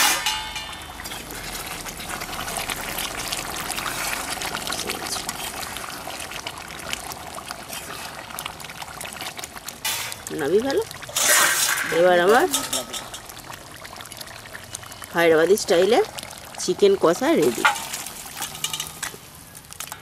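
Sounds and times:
curry bubbling in a pan: 0.6s - 20.0s
metal spatula stirring: 11.1s - 13.3s.

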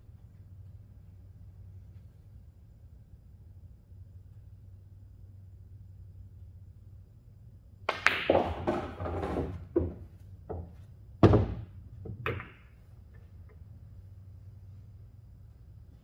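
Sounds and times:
cue tip striking ball: 7.9s - 12.8s
pool balls rolling and knocking: 7.9s - 13.6s
heavy thunk: 11.2s - 11.7s.

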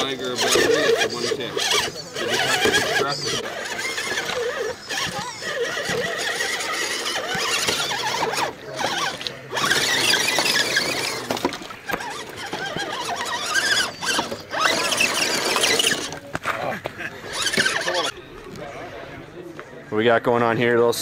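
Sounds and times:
electric toy truck motor whining: 0.0s - 16.2s, 17.2s - 18.2s.

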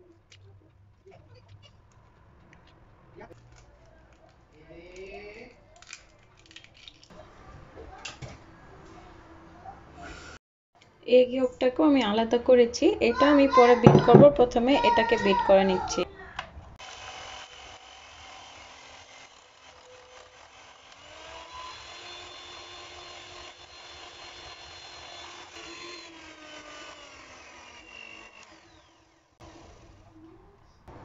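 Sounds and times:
electric hand mixer whirring: 16.8s - 29.9s.

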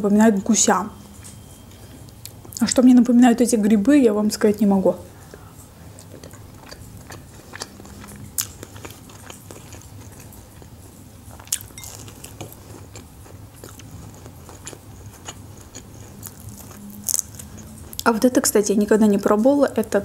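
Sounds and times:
person chewing food: 5.2s - 18.1s.

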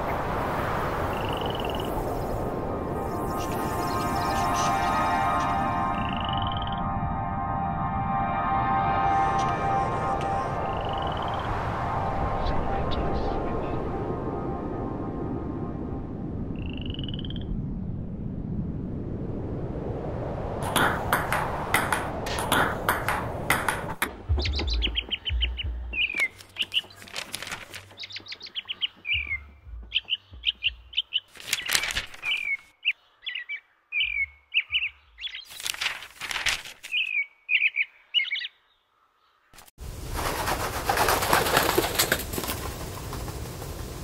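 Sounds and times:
dense whooshing noise: 0.0s - 26.1s
rhythmic whooshing pulses: 1.9s - 16.6s
bird chirps: 10.6s - 11.5s, 24.3s - 27.2s, 27.8s - 35.6s, 36.9s - 39.5s
low thumps: 20.6s - 26.2s.

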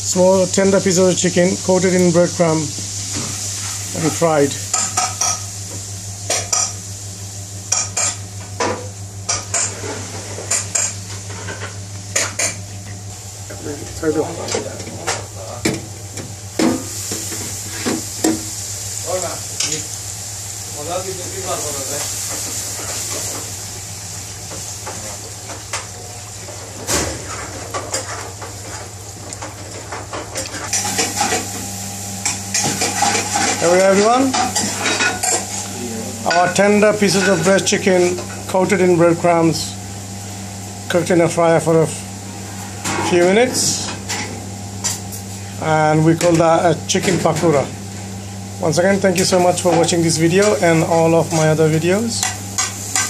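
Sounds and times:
chicken deep-frying in oil: 0.0s - 53.0s
steady low hum: 0.0s - 53.0s.

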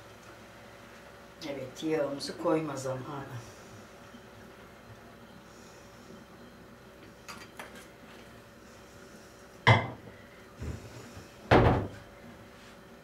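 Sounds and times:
cupboard knocks and thuds: 11.5s - 12.0s.

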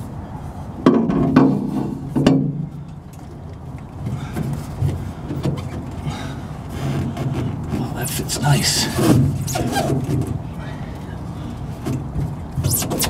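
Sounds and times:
rubber hose squeaking on metal: 6.7s - 10.4s, 12.6s - 13.0s.

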